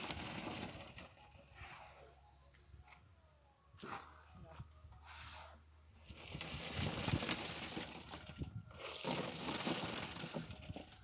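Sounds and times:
wet concrete sliding and rattling: 0.0s - 1.4s, 6.0s - 11.0s.

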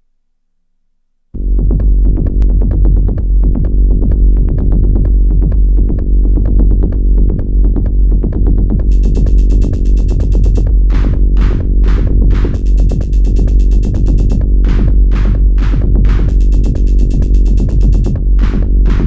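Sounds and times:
deep bass drone: 1.4s - 19.0s
techno from synthesizers: 1.4s - 19.0s
fast sequenced synth notes: 8.8s - 19.0s
high ticking hi-hat: 8.8s - 19.0s.

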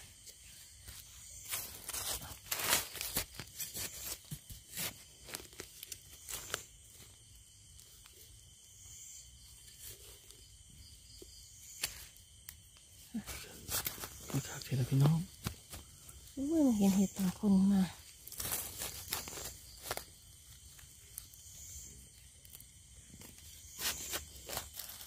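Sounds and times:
dry leaves rustling and crunching: 0.5s - 7.2s, 13.2s - 21.9s, 22.5s - 25.0s.

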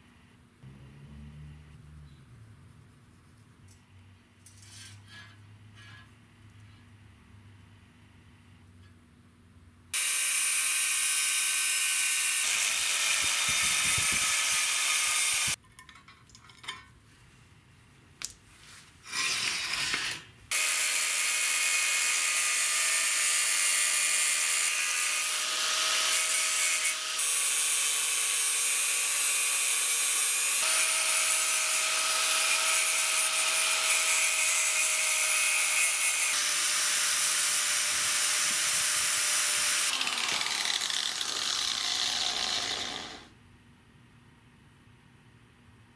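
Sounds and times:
angle grinder cutting steel: 10.0s - 15.6s, 19.1s - 43.3s.

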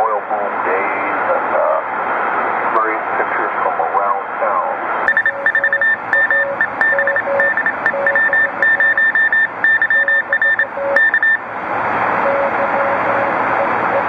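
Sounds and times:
radio band hiss: 0.0s - 6.8s
high-pitched morse code tone: 5.1s - 11.4s, 12.2s - 14.0s
lower morse code tone: 5.1s - 11.5s, 12.2s - 14.0s.

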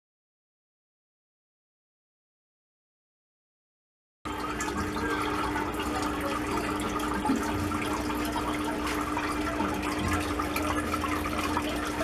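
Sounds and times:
aquarium water bubbling: 4.3s - 12.0s
steady hum: 4.3s - 12.0s.

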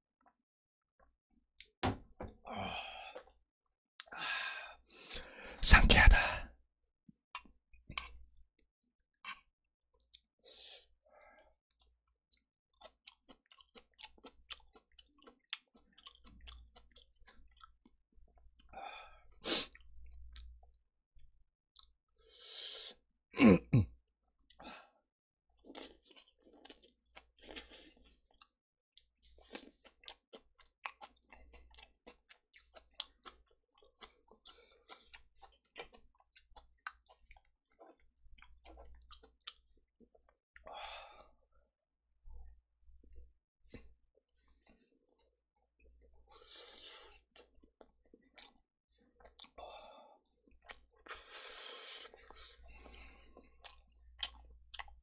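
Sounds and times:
close chewing and mouth clicks: 7.4s - 10.9s, 11.6s - 22.0s, 25.6s - 40.7s, 42.3s - 55.0s.

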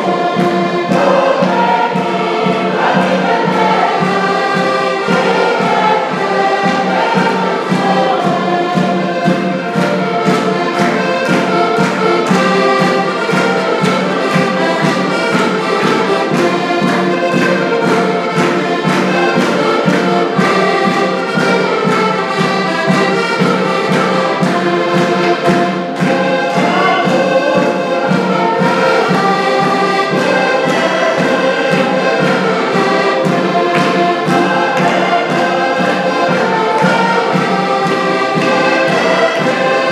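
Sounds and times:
button accordions playing: 0.0s - 39.9s
voices singing along: 0.0s - 39.9s.

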